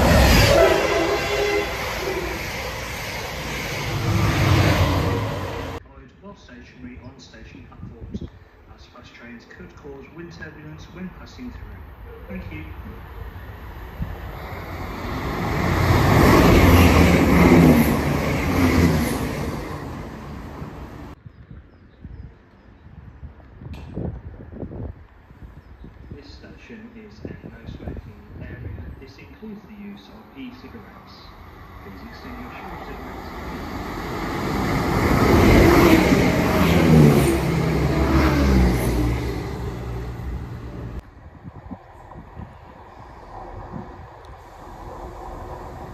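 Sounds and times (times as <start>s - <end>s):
train wheels rushing: 0.0s - 5.8s, 14.0s - 21.2s, 31.4s - 41.0s.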